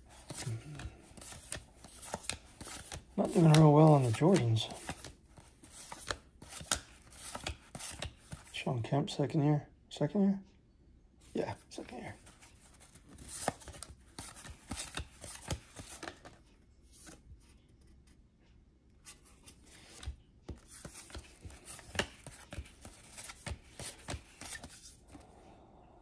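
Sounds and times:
trading cards clicking and rubbing: 0.0 - 8.5, 12.1 - 16.4, 19.1 - 25.2.

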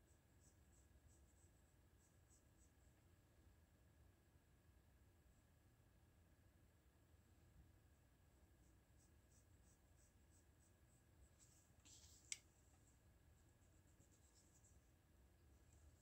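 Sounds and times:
pencil scratching on paper: 8.6 - 12.3.

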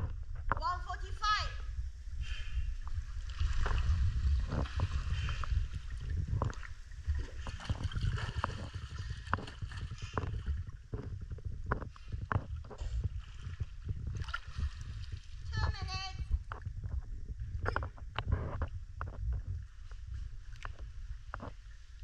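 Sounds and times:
low churning rumble: 0.0 - 22.0
water lapping and sloshing: 1.7 - 22.0
small water splashes: 13.2 - 15.5.

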